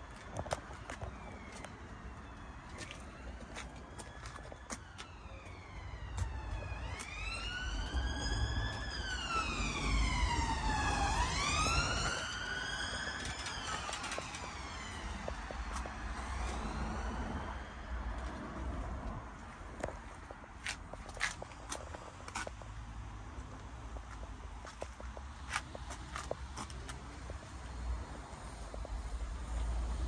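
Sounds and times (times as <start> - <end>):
emergency vehicle siren wailing: 0.0 - 22.6.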